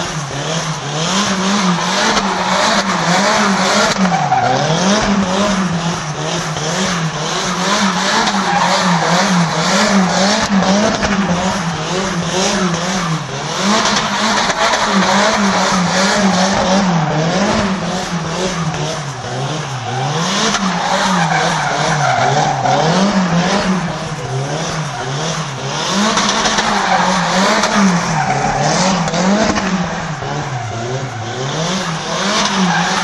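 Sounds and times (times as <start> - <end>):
car engine revving: 0.0 - 33.0.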